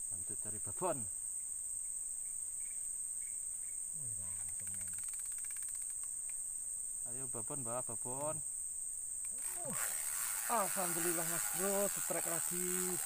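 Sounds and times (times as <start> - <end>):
high-pitched insect drone: 0.0 - 13.0
fast even ticking: 9.3 - 13.0.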